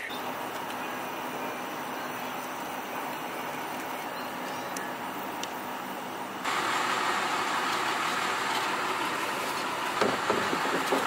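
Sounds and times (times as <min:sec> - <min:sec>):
truck engine idling: 0:00.0 - 0:11.0
light knocks: 0:10.0 - 0:11.0.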